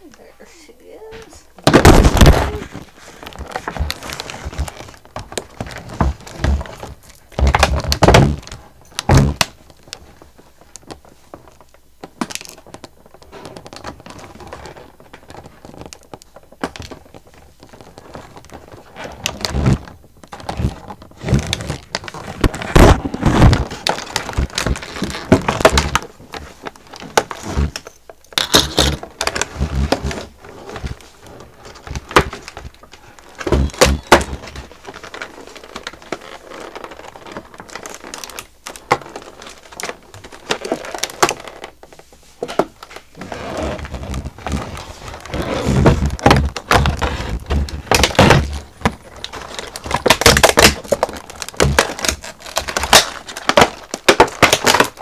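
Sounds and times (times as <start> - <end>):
plastic packaging crinkling: 0.0 - 55.0
plastic case thunks: 1.6 - 2.8.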